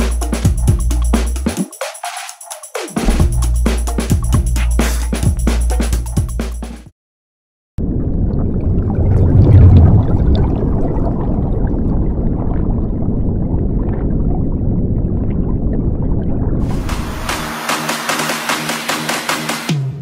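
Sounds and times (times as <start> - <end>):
underwater rumble with gurgling bubbles: 7.8 - 17.2.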